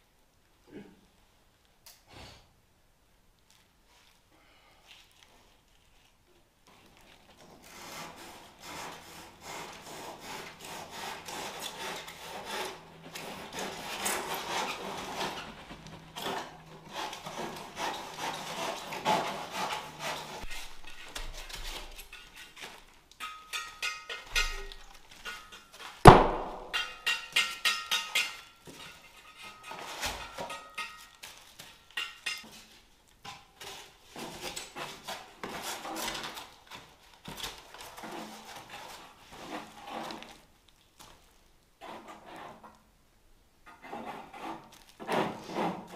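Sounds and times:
hand saw rasping through foam: 0:07.6 - 0:22.6, 0:43.8 - 0:45.9
sharp knock: 0:26.1 - 0:26.9.

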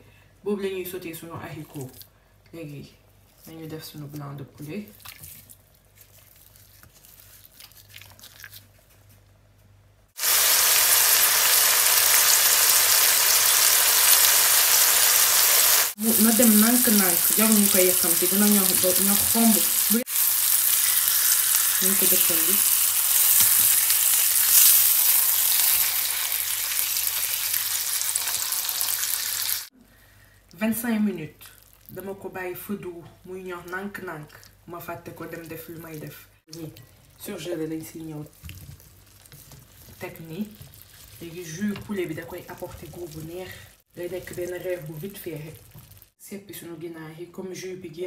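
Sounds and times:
chicken sizzling in frying pan: 0:10.2 - 0:29.7, 0:43.1 - 0:46.1.

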